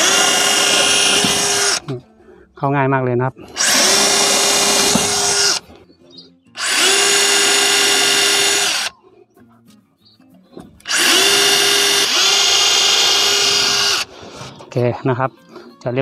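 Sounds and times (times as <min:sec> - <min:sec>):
drill motor whine: 0:00.0 - 0:01.8, 0:03.6 - 0:05.6, 0:06.6 - 0:08.9, 0:10.9 - 0:14.1.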